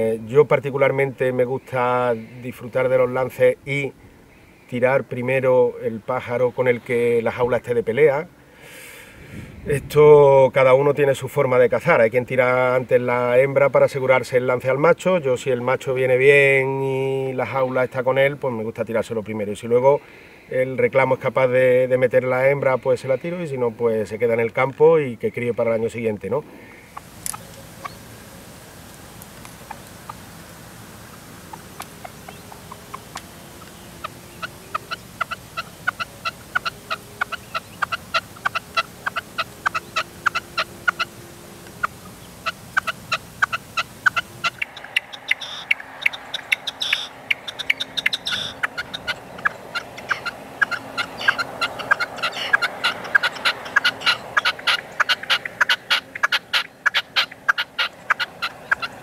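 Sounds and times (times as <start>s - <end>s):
partridge clicking calls: 26.9s - 59.0s.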